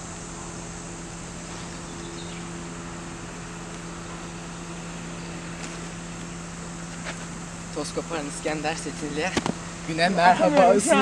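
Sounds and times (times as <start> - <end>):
background hiss: 0.0 - 11.0
steady low hum: 0.0 - 11.0.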